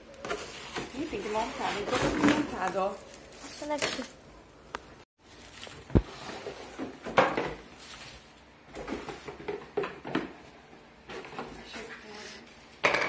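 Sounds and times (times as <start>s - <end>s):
cardboard and plastic rustling: 0.1s - 4.2s, 5.2s - 10.0s.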